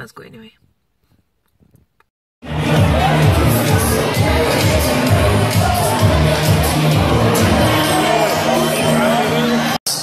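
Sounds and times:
crowd chatter: 2.4s - 10.0s
party music: 2.4s - 10.0s.

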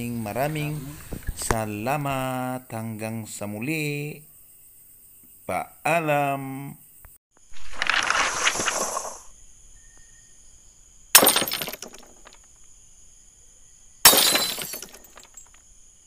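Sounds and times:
glass shattering: 11.2s - 12.4s, 14.0s - 15.6s.

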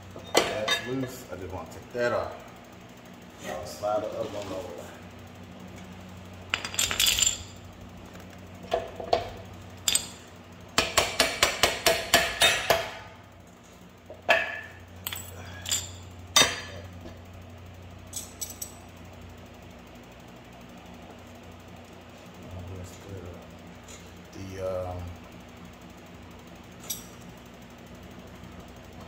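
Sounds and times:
hammer striking metal: 10.8s - 13.1s.

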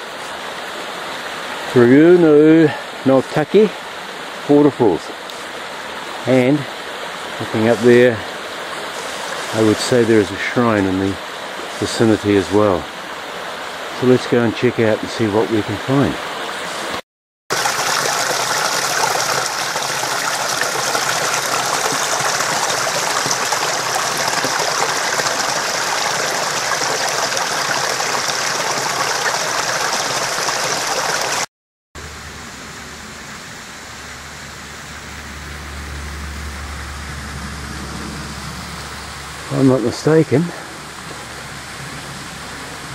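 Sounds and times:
stream rushing over rocks: 0.0s - 31.5s
low rumble: 32.0s - 39.5s.

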